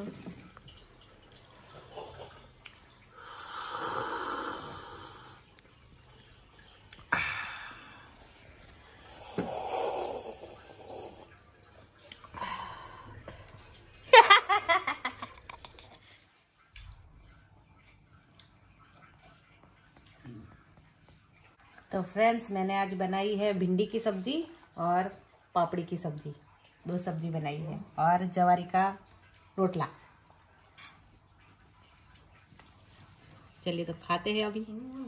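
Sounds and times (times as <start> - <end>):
slurping hot tea: 3.2 - 5.4, 9.0 - 11.3.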